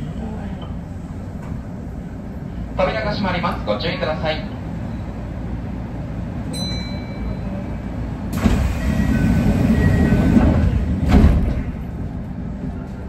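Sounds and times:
train doors closing: 0.0s - 13.0s
train humming: 0.0s - 13.0s.

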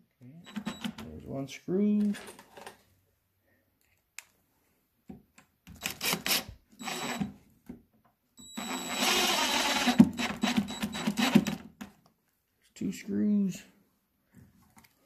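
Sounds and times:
power drill whirring: 5.8s - 7.4s, 8.4s - 11.7s.

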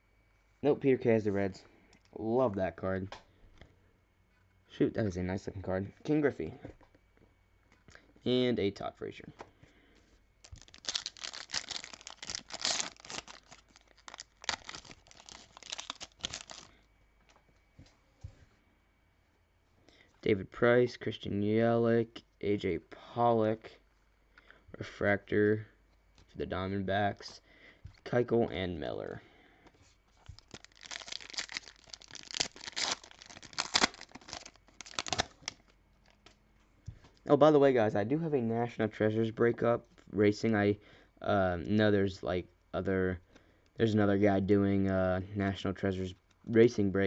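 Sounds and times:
wrapper tearing and crinkling: 10.4s - 16.7s, 30.2s - 36.2s.

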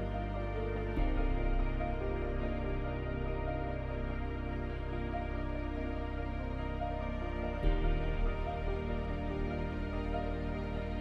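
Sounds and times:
deep bass note: 0.0s - 11.0s.

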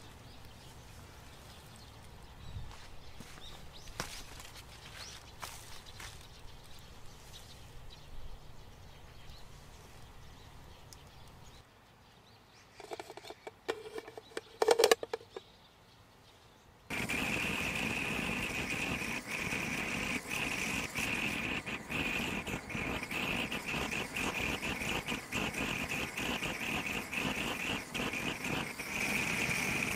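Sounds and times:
metal rack scraping in pot: 12.8s - 15.4s
fire burning and crackling: 16.9s - 29.9s.

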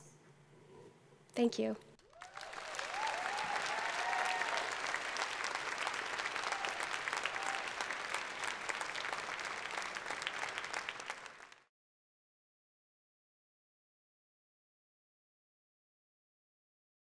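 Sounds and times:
whoops and cheers: 2.0s - 8.1s
audience applauding: 2.0s - 11.7s.

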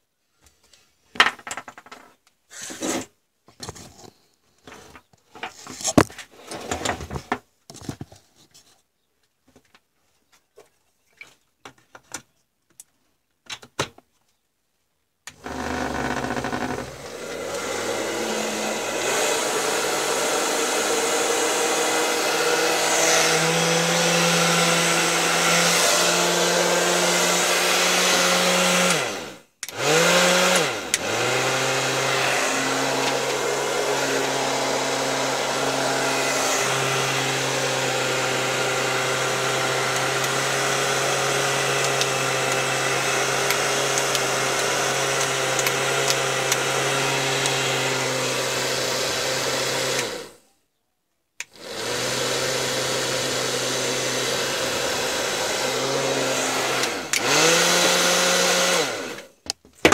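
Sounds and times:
hair dryer fan motor humming: 15.3s - 50.4s, 51.4s - 59.3s.

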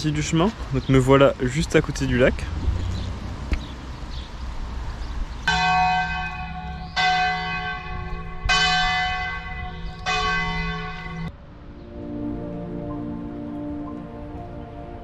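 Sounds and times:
church bell striking: 5.5s - 11.3s.

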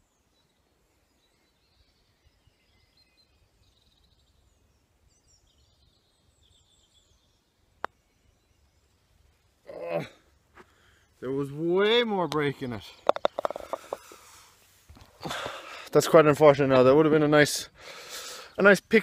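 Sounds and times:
faint birdsong: 0.0s - 19.0s
putter striking golf ball: 13.0s - 14.0s.

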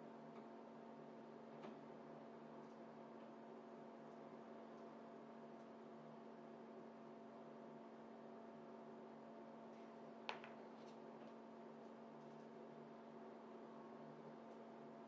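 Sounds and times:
low electrical hum: 0.0s - 15.0s
tool set down on wooden table: 10.3s - 10.6s.

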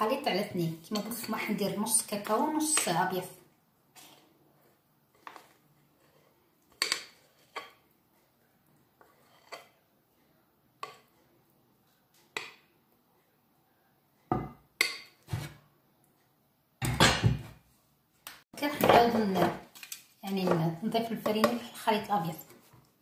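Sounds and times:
batter being scraped: 9.0s - 9.7s.

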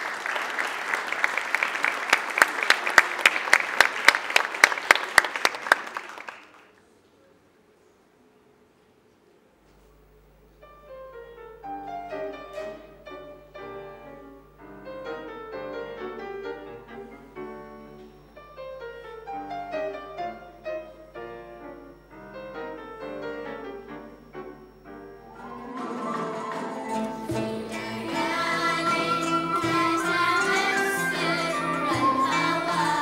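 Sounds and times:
grand piano playing: 10.6s - 33.0s.

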